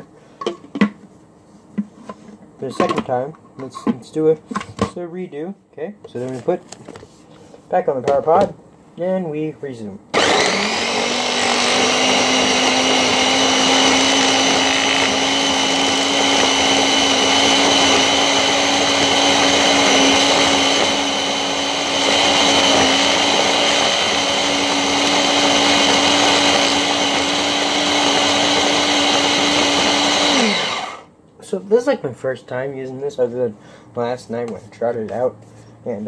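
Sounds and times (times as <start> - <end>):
food processor motor running: 10.1 - 31.1.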